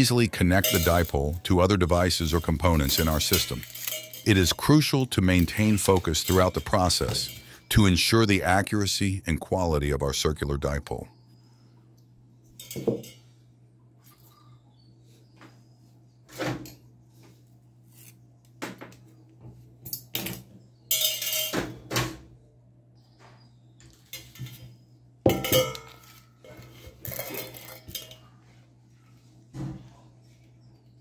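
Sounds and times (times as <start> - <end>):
metal parts clinking: 0.5 - 1.4, 2.1 - 7.7, 19.9 - 21.6, 25.3 - 28.2.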